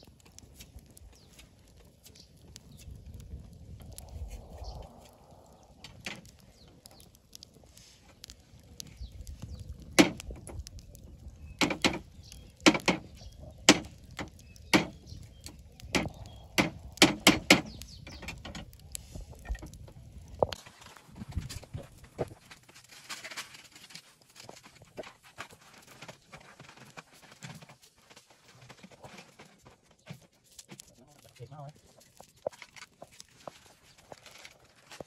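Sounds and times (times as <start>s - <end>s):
sharp fire pops: 0.0s - 27.5s
wood fire crackling: 0.0s - 35.0s.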